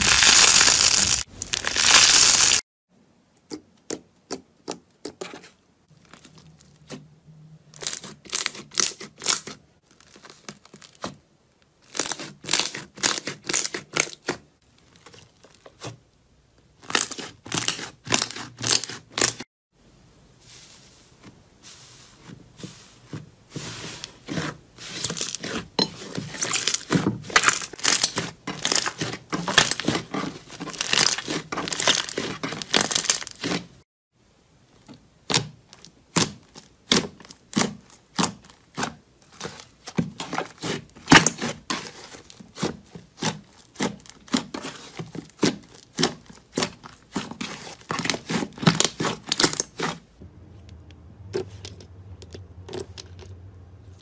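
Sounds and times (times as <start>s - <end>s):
slime crackling and popping: 0.0s - 2.6s, 26.4s - 33.6s
low hum: 50.2s - 54.0s.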